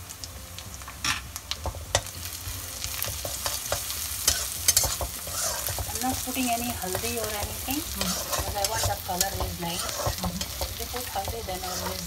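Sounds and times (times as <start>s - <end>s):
food sizzling in hot oil: 0.0s - 12.0s
metal spatula scraping a wok: 3.1s - 12.0s.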